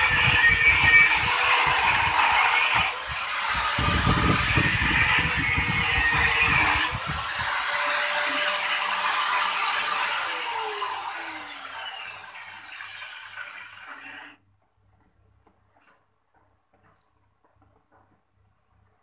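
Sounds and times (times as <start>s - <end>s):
angle grinder cutting metal: 0.0s - 14.4s.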